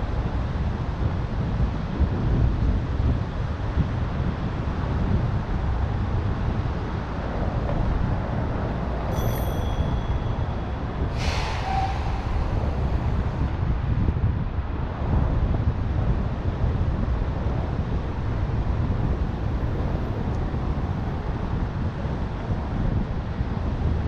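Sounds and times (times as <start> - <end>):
traffic and road noise: 0.0 - 24.0
wind buffeting microphone: 0.0 - 24.0
high squeal: 9.1 - 13.0
sharp hiss: 11.1 - 12.5.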